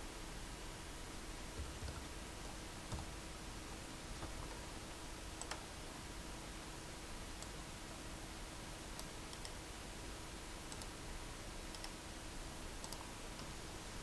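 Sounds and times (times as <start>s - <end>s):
faint hum: 0.0s - 14.0s
low hiss: 0.0s - 14.0s
computer mouse clicks: 5.4s - 5.7s, 9.0s - 9.6s, 10.7s - 11.0s, 11.7s - 12.0s, 12.8s - 13.6s.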